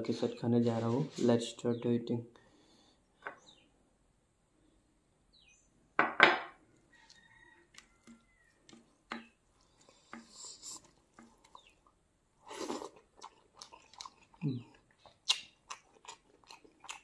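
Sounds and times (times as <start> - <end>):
fingers mixing food on plate: 7.0 - 12.0.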